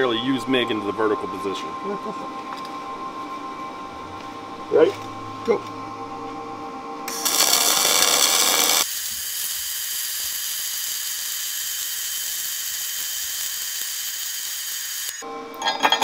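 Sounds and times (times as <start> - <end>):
arc welding sizzling: 7.1 - 15.2.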